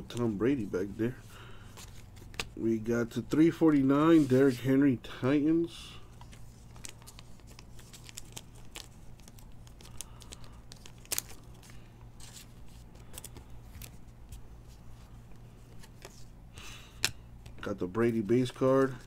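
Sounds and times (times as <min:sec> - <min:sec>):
steady low hum: 0:00.0 - 0:19.0
trading cards flipped by hand: 0:01.7 - 0:02.6, 0:06.2 - 0:17.6.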